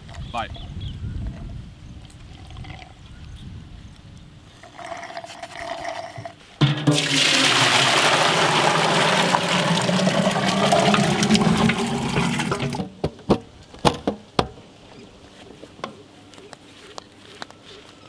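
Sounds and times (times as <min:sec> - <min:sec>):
thick liquid pouring into steel pot: 0:04.6 - 0:12.8
sharp knocks: 0:06.6 - 0:07.2.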